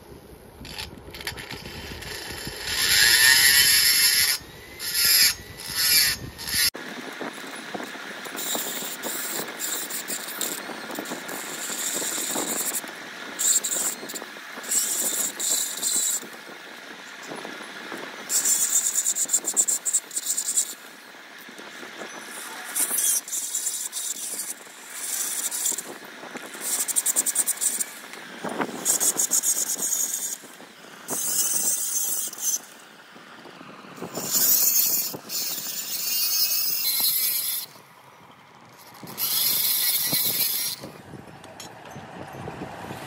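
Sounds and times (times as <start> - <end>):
filing on metal cylinder: 0.7 - 6.8, 8.3 - 12.8, 13.4 - 16.3, 18.3 - 20.8, 22.7 - 25.9, 28.8 - 30.5, 31.1 - 32.7, 34.1 - 37.8, 38.9 - 41.0.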